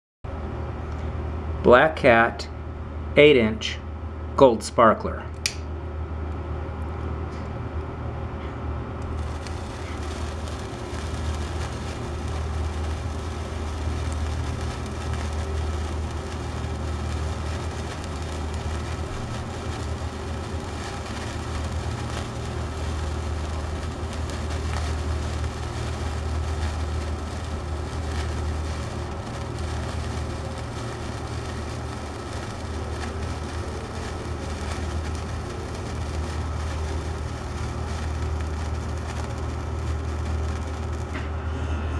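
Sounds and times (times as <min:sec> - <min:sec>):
constant low hum: 0:00.3 - 0:41.9
sparkler crackling fizz: 0:09.0 - 0:41.3.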